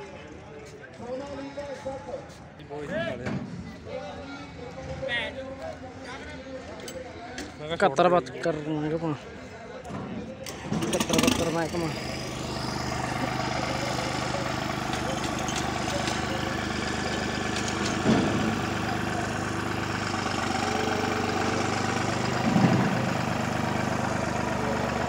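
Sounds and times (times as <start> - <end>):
tractor diesel engine idling: 10.4 - 25.0.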